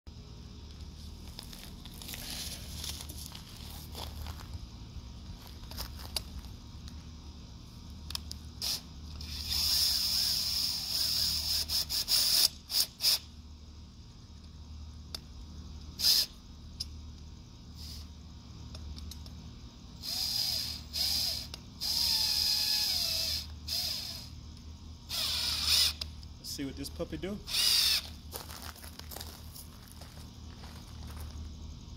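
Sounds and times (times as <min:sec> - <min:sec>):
cordless drill bursts: 0:08.6 - 0:13.2, 0:16.0 - 0:16.4, 0:20.0 - 0:24.3, 0:25.1 - 0:26.0, 0:27.5 - 0:28.1
drill chuck ratcheting: 0:27.5 - 0:28.0.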